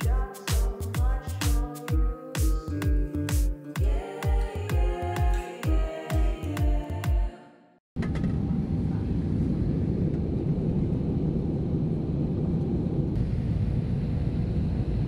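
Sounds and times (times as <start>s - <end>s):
jet airliner cabin rumble: 8.0s - 15.0s.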